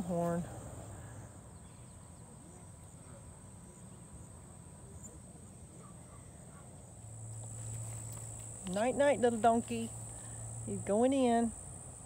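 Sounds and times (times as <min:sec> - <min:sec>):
crickets trilling: 0:02.6 - 0:12.0.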